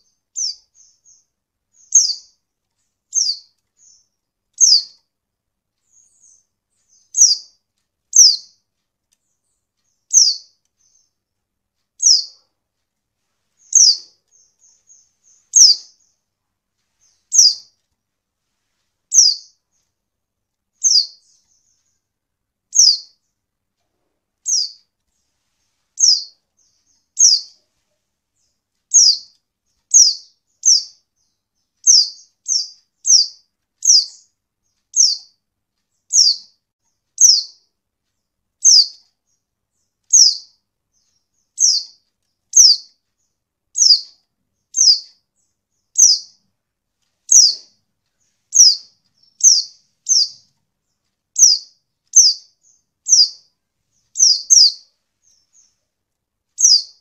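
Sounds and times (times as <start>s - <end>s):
high thin bird calls: 0.0s - 2.4s, 3.1s - 5.0s, 5.9s - 8.6s, 9.8s - 11.1s, 12.0s - 12.5s, 13.6s - 16.2s, 17.0s - 17.8s, 19.1s - 19.6s, 20.8s - 22.0s, 22.7s - 23.2s, 24.4s - 24.9s, 26.0s - 27.7s, 28.4s - 35.4s, 36.0s - 36.6s, 37.2s - 37.7s, 38.6s - 39.0s, 40.1s - 43.0s, 43.8s - 45.2s, 46.0s - 46.4s, 47.3s - 47.8s, 48.5s - 50.5s, 51.4s - 55.8s, 56.6s - 57.0s.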